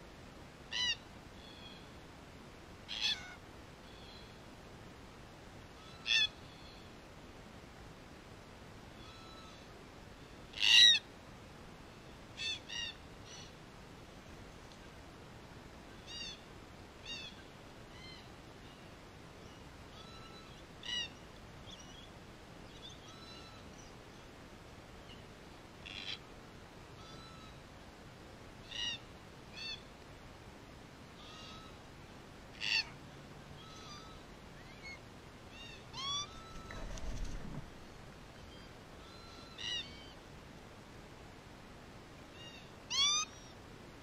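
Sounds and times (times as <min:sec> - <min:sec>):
wings fluttering: 0:36.2 - 0:38.0.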